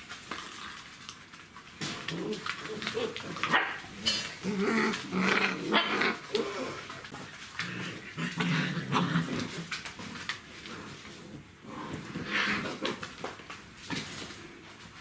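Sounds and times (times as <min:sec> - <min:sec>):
dog growling: 0:02.0 - 0:09.8, 0:10.6 - 0:13.0.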